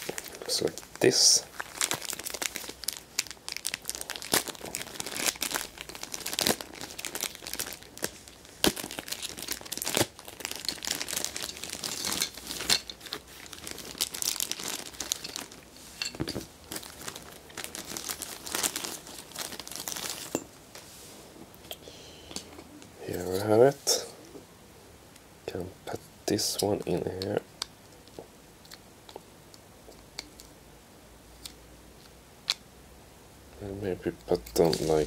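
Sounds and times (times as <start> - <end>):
plastic bag crinkling: 0.0 - 20.5, 34.6 - 35.0.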